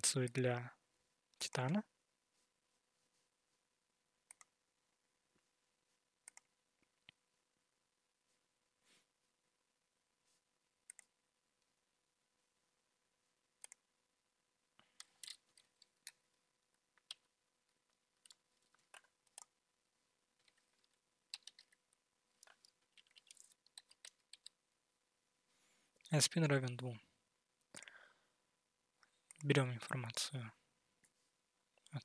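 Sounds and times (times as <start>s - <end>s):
mouse clicks: 4.3s - 4.6s, 6.2s - 7.2s, 10.9s - 11.1s, 13.6s - 13.8s.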